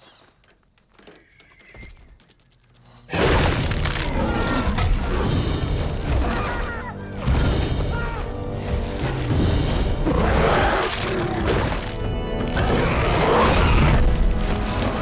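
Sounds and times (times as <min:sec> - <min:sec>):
dramatic orchestral film music: 0:03.5 - 0:15.0.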